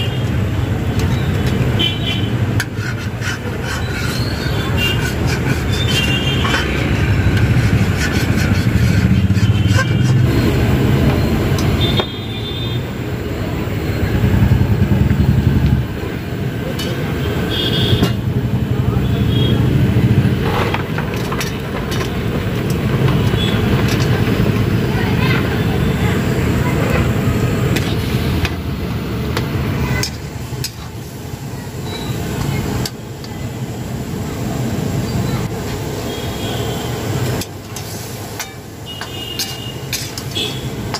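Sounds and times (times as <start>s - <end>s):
gas burner roaring: 0.0s - 40.9s
high squeak: 3.7s - 7.4s.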